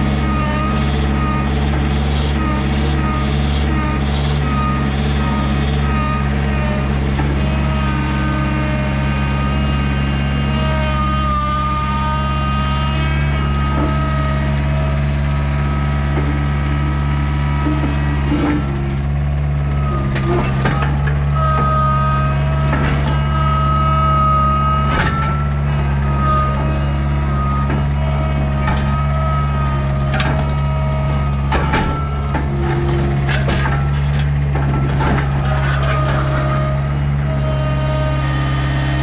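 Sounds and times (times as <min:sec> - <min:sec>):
diesel engine running: 0:00.0 - 0:39.0
metallic clanks and knocks: 0:17.6 - 0:23.4, 0:24.8 - 0:37.2.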